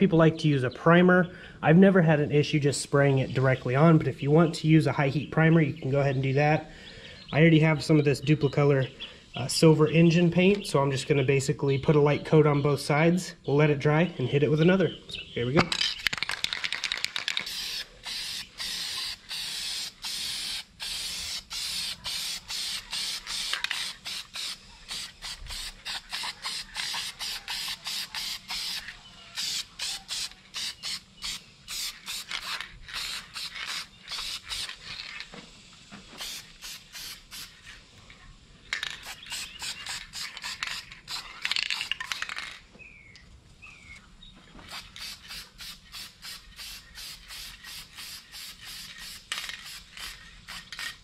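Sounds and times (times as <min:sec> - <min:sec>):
aerosol spray hissing: 0:17.4 - 0:37.8, 0:39.0 - 0:41.4, 0:44.7 - 0:51.0.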